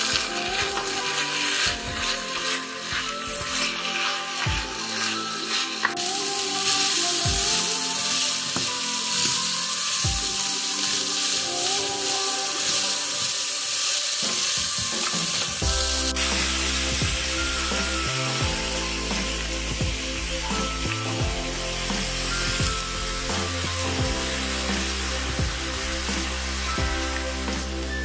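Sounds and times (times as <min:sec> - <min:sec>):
wooden spatula stirring: 0:00.0 - 0:20.2
background music: 0:00.0 - 0:28.0
cabbage sizzling in a pan: 0:00.0 - 0:28.0.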